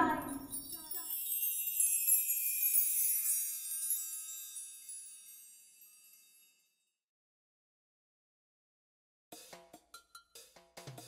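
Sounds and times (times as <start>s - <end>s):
shimmering wind chime tones: 0.0s - 7.0s.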